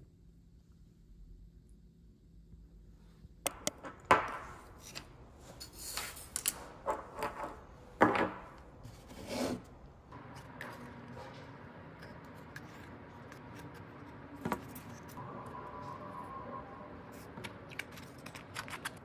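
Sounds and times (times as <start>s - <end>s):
small objects handled on a table: 3.5s - 9.7s.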